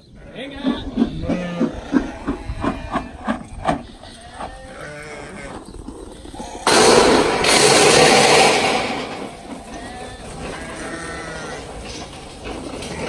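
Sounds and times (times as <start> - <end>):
sheep bleating: 4.0 - 6.7, 9.5 - 11.8
loud even rushing noise: 6.7 - 9.6
sheep shuffling: 9.2 - 13.0.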